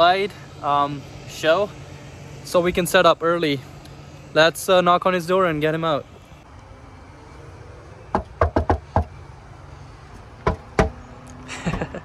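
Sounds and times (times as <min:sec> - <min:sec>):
knocking on wooden door: 0:08.1 - 0:09.1.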